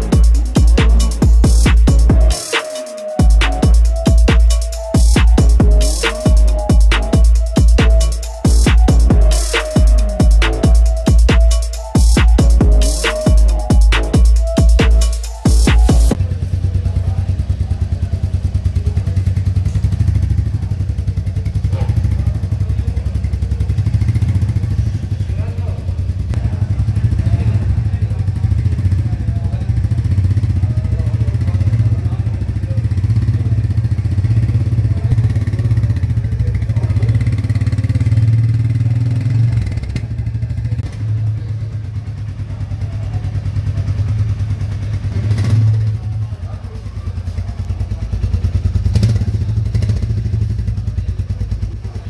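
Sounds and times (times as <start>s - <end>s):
motorcycle engine running at low revs: 15.8s - 52.0s.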